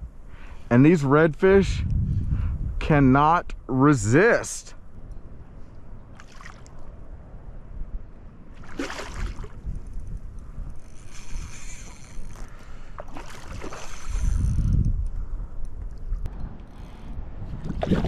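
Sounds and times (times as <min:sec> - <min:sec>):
wind rumble on microphone: 0:01.2 - 0:03.7, 0:04.8 - 0:18.0
fish thrashing and splashing: 0:08.6 - 0:09.6, 0:13.0 - 0:14.3.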